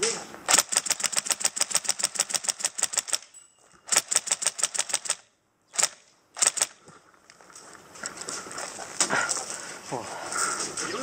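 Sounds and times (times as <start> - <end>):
airsoft rifle firing: 0.5 - 3.2, 3.9 - 6.8.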